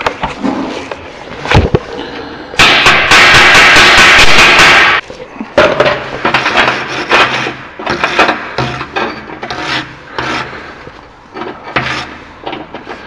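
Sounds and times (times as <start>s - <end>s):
scraping and tapping on metal: 5.6s - 13.0s.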